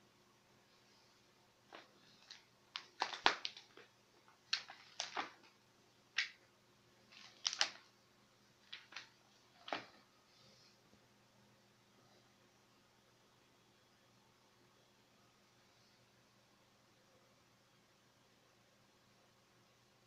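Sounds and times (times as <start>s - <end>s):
book pages turning: 1.7s - 6.4s, 7.1s - 7.9s, 8.6s - 10.0s.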